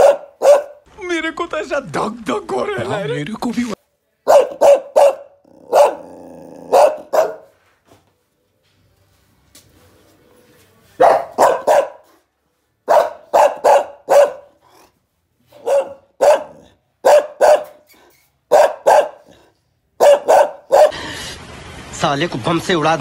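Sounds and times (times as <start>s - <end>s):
small dog barking: 0.0s - 0.8s, 4.2s - 7.5s, 11.0s - 12.2s, 12.9s - 14.6s, 15.5s - 17.8s, 18.5s - 19.4s, 20.0s - 21.0s.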